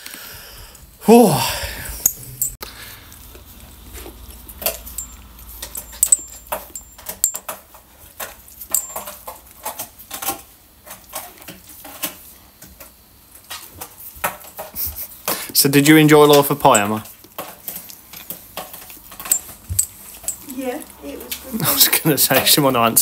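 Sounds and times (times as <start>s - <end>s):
food bowl clattering: 2.3s - 12.2s, 14.2s - 23.0s
metal collar tags jingling: 4.2s - 7.6s, 8.6s - 9.2s, 16.3s - 17.0s, 19.1s - 21.9s.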